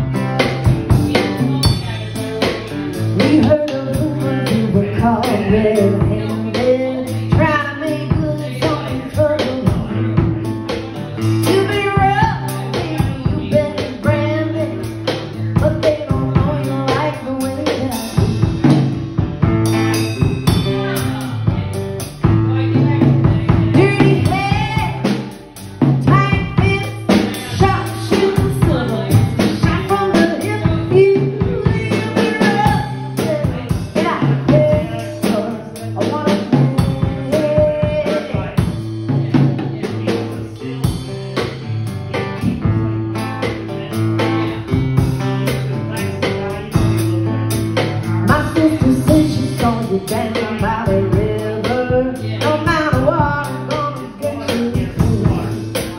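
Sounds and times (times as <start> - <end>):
drum kit with rimshots: 0.0 - 55.9
woman singing: 3.0 - 18.7, 22.3 - 40.7, 48.1 - 55.9.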